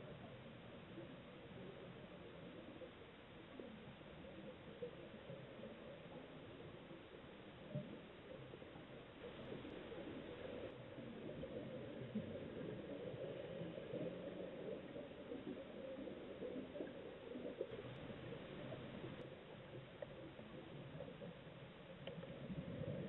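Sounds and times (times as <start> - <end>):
crackle of tiny underwater clicks: 0.0 - 23.0.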